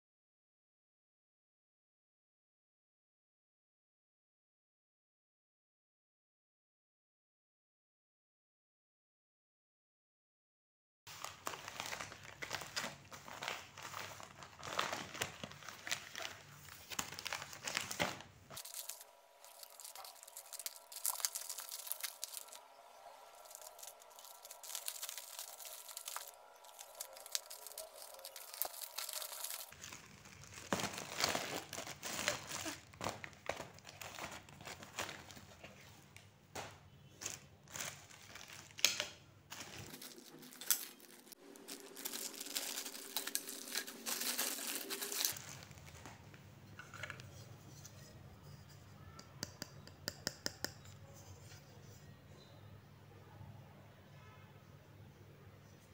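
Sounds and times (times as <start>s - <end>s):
plastic packaging crinkling and tearing: 11.1s - 36.0s, 36.6s - 47.3s.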